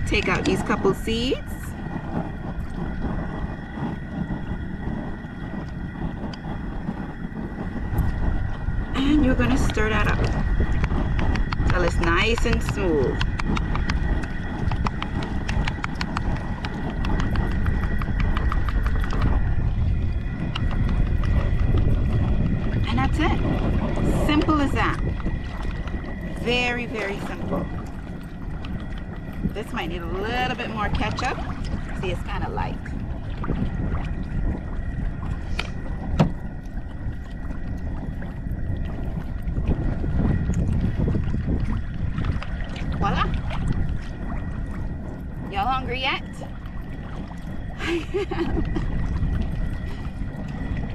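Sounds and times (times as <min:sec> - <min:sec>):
lapping sea water: 0:00.0 - 0:50.9
low rumble: 0:00.0 - 0:50.9
wind: 0:00.0 - 0:50.9.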